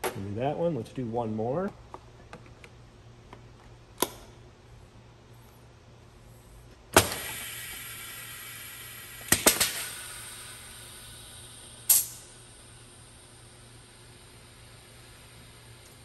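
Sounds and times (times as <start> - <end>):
pneumatic cylinder clacks: 7.0 - 8.5, 9.1 - 10.6, 11.8 - 12.3
pneumatic air hiss: 7.0 - 16.0.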